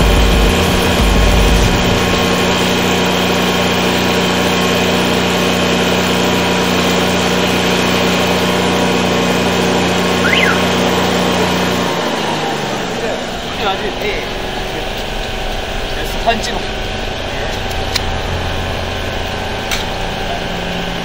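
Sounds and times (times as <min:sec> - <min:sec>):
drain-jetting machine humming: 0:00.0 - 0:21.0
brief high chirp: 0:10.2 - 0:10.8.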